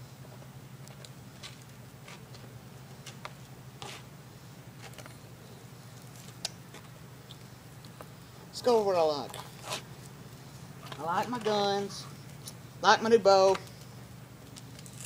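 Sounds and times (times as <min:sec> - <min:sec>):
steady low hum: 0:00.0 - 0:15.0
wheelchair rolling over gritty pavement: 0:07.8 - 0:10.2, 0:10.8 - 0:12.2.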